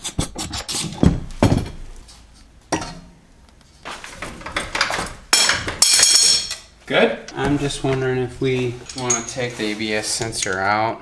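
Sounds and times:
metal clattering: 4.0s - 6.7s, 7.4s - 10.6s
metal wrench clinking on wheel hub: 8.8s - 9.4s.

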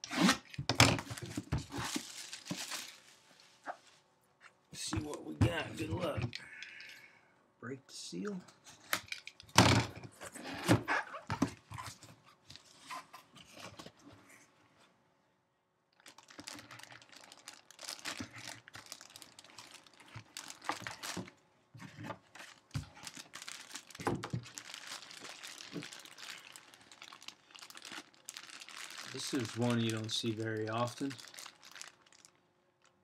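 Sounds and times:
plastic bag crinkling: 0.9s - 3.6s, 15.9s - 21.4s, 22.0s - 33.0s.

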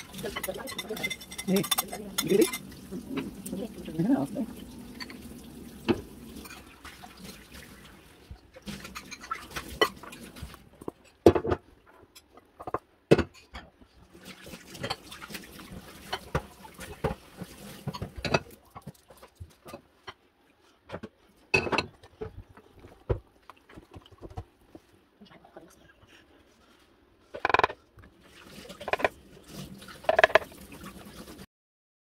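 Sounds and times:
whisk stirring thick batter: 0.0s - 2.6s.

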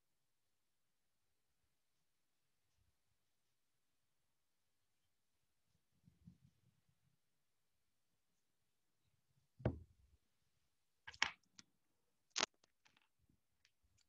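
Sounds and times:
dull knock: 9.6s - 9.9s.

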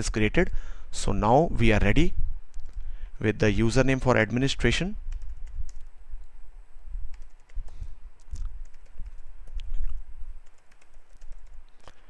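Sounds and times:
keyboard typing: 5.1s - 5.9s, 7.1s - 12.0s.

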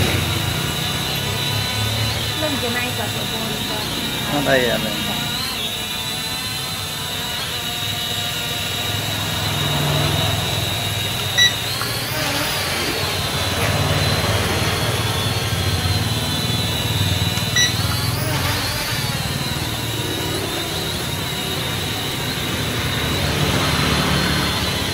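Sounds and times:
toy drone propellers whining: 0.0s - 24.9s
short beeps: 11.3s - 12.1s, 17.3s - 18.1s.

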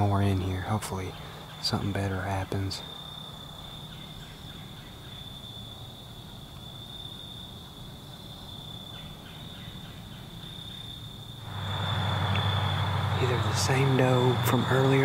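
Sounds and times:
insects droning: 0.0s - 15.0s
low outdoor rumble: 11.0s - 15.0s.

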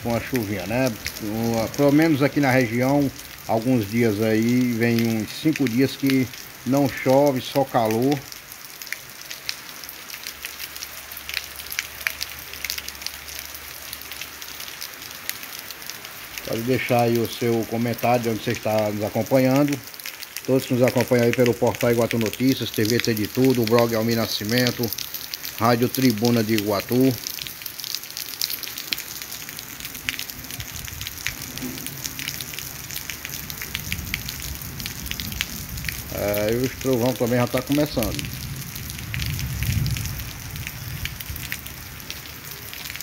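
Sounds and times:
light rain on pavement: 0.0s - 43.0s.

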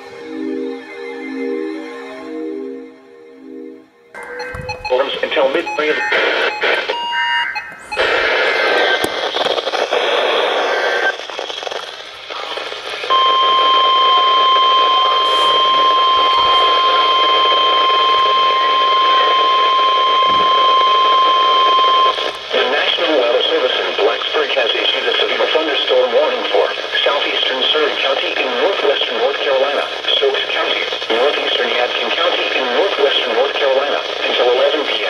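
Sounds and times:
steady warning alarm tone: 4.1s - 11.2s, 12.2s - 23.4s.

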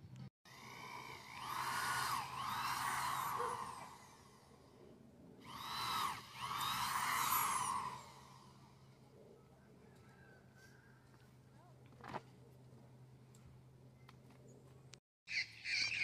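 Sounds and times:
power drill whining into wood: 0.5s - 4.4s, 5.4s - 8.6s.

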